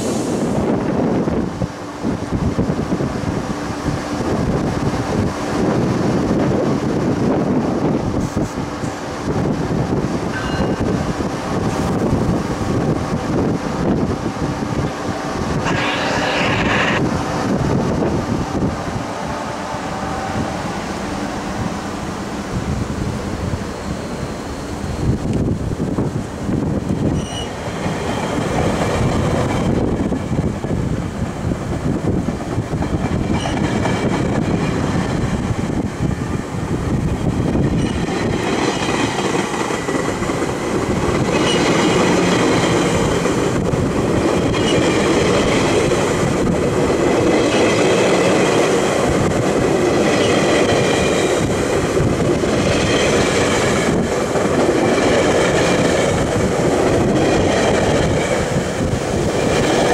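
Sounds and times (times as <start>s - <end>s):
train wheels rumbling on rails: 0.0s - 59.9s
high squealing wheels: 15.6s - 17.0s, 27.0s - 28.4s, 33.2s - 33.7s.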